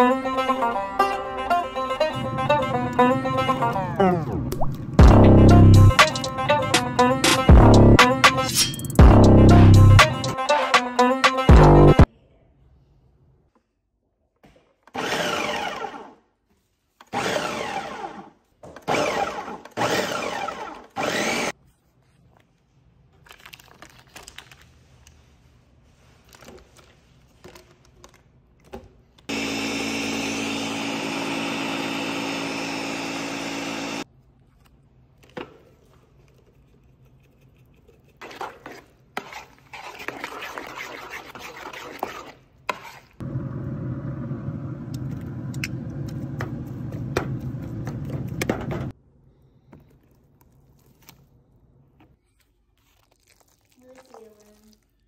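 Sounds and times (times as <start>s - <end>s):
blender running: 15.0s - 16.2s, 17.2s - 18.3s, 18.9s - 21.5s, 29.3s - 34.0s.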